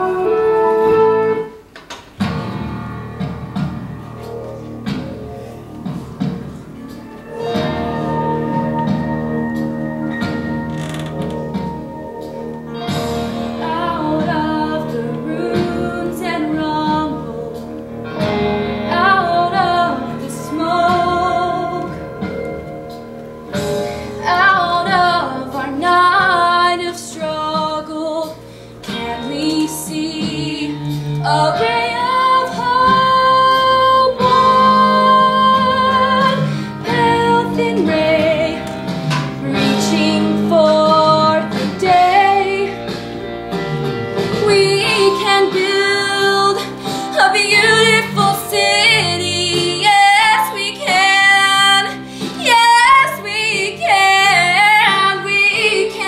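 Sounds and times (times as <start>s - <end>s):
instrumental accompaniment: 0.0s - 56.0s
woman singing: 13.5s - 17.8s, 18.8s - 22.3s, 24.2s - 43.0s, 44.3s - 56.0s.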